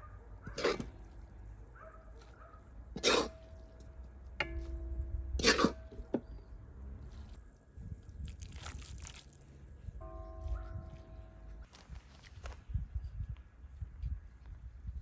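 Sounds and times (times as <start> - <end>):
metallic ring: 3.4 - 6.1
metal skimmer knocking on pots: 4.4 - 6.2.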